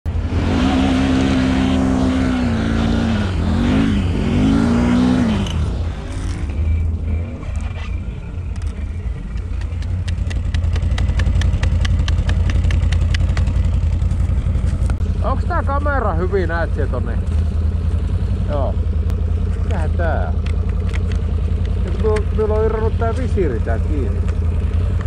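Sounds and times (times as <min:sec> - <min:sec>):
off-road vehicle engine revving: 0:00.1 - 0:25.0
fast regular clicking: 0:09.3 - 0:13.8.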